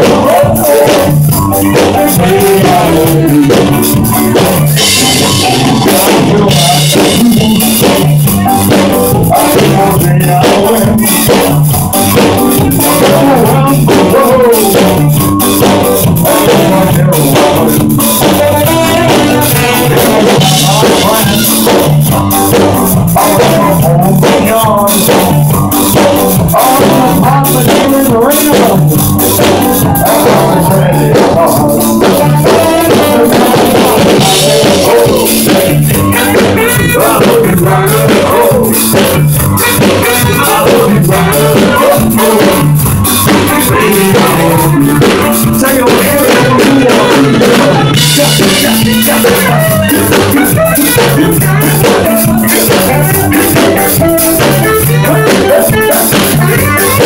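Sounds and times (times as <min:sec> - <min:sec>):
drum kit: 0:00.0 - 0:57.0
live rock band playing: 0:00.0 - 0:57.0
person singing: 0:00.0 - 0:57.0.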